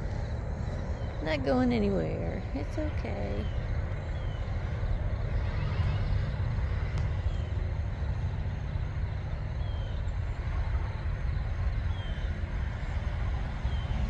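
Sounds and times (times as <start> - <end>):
steady low rumble: 0.0 - 14.0.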